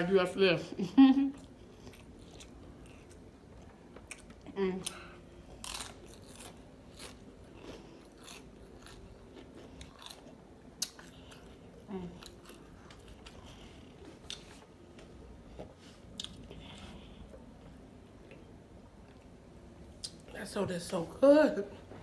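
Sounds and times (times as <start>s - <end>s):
chewing crisp tortilla chips: 1.4s - 14.7s.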